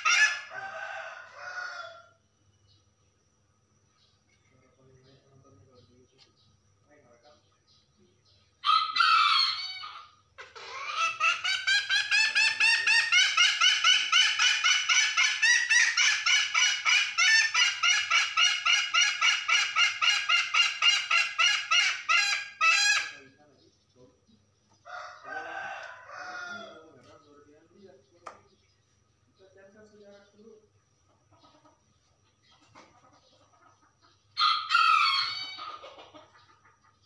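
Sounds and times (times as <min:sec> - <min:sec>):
hen calling rapidly: 0:00.0 - 0:01.7, 0:08.6 - 0:23.4.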